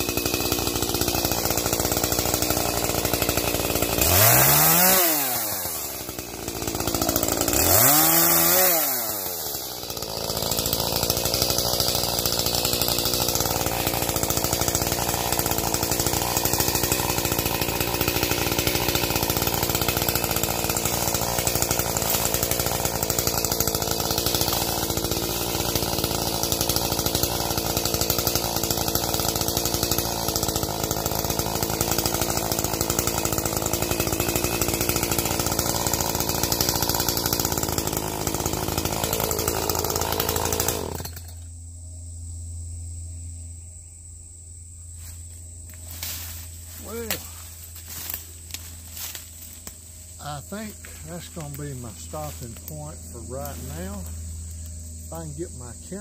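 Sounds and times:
chainsaw cutting wood: 0.0s - 41.6s, 45.0s - 56.0s.

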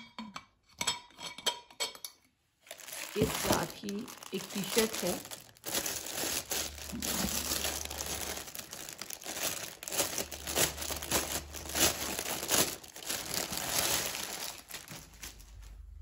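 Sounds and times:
plastic bag crinkling: 2.6s - 16.0s.

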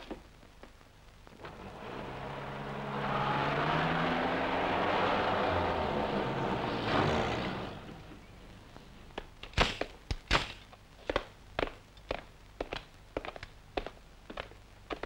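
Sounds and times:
footsteps of people walking: 0.0s - 1.4s, 11.0s - 15.0s
car engine running: 1.4s - 9.0s.

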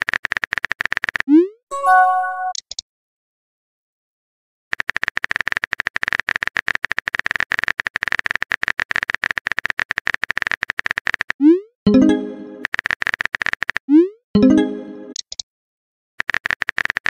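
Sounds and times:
keyboard typing clicks: 1.8s - 2.8s, 4.8s - 13.8s, 14.4s - 15.4s.

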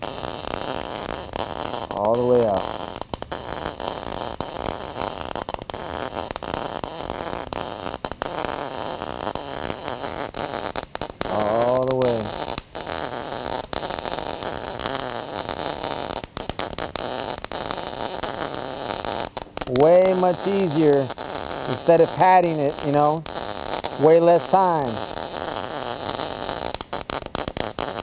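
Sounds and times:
welding arc crackling: 0.0s - 28.0s.

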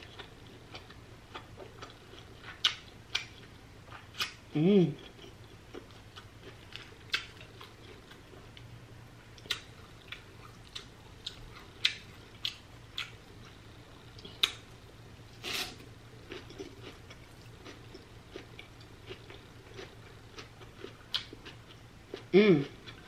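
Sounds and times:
slurping noodles: 15.4s - 15.8s.

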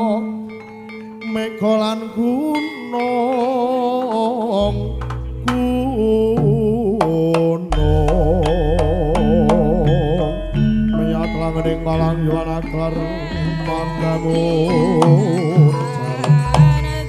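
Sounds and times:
struck metallophone notes: 0.0s - 17.0s
deep low tone: 4.6s - 17.0s
wavering vibrato melody: 7.7s - 17.0s.

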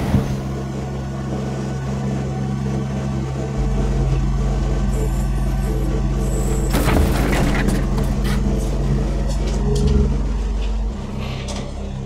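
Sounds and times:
diesel engine running: 0.0s - 12.0s
music: 0.0s - 12.0s
excavator clatter: 6.4s - 10.8s.

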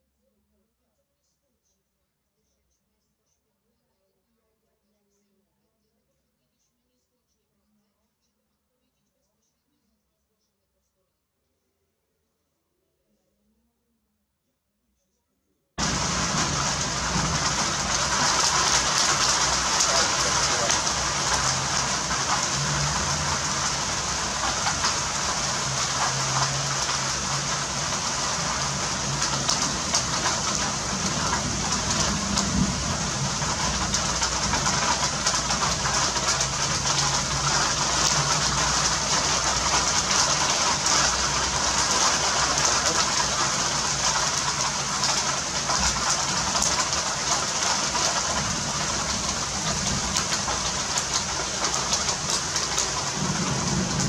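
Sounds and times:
heavy rain on a roof: 15.8s - 54.0s
low rumble: 15.8s - 54.0s.

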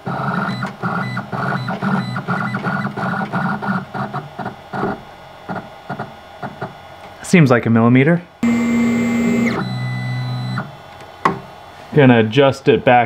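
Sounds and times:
stepper motor buzzing pulses: 8.4s - 10.8s.

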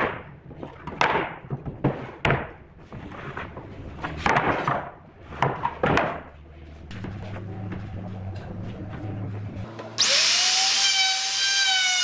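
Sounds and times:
boards scraping and rubbing: 0.4s - 9.7s.

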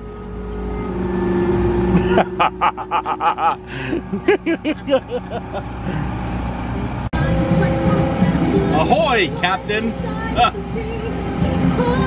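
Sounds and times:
outboard motor running: 0.0s - 12.0s
person laughing: 1.9s - 6.2s.

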